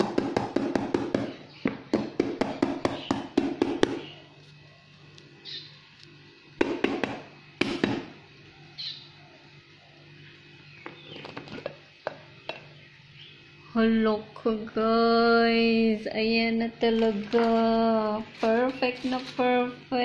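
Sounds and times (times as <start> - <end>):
louder knocks on mold: 0.0 - 4.0, 6.6 - 8.1.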